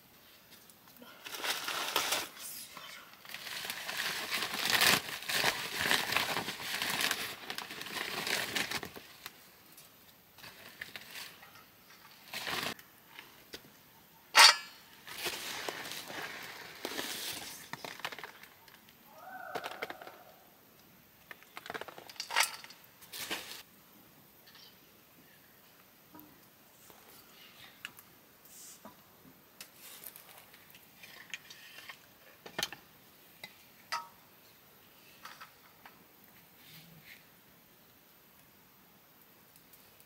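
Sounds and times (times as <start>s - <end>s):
rustling and crinkling handling: 0.2s - 2.5s, 3.1s - 13.7s, 15.0s - 19.0s, 21.3s - 23.7s, 29.6s - 32.5s.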